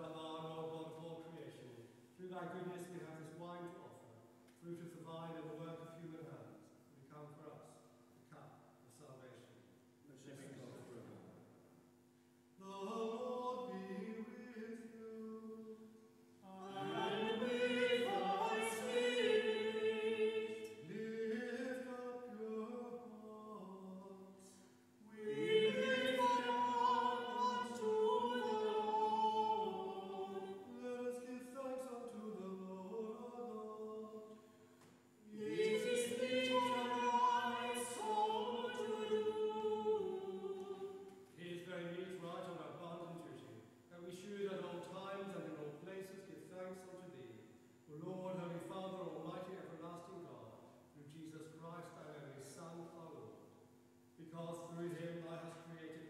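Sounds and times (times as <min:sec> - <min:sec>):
church choir singing: 0:12.7 - 0:24.4, 0:25.0 - 0:34.4, 0:35.2 - 0:42.3.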